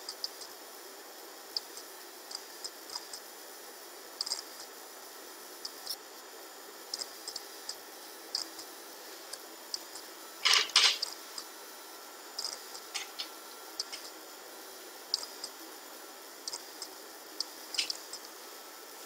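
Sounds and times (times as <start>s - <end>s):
computer mouse clicks: 1.6s - 3.2s, 4.2s - 4.7s, 6.9s - 8.6s, 16.4s - 18.3s.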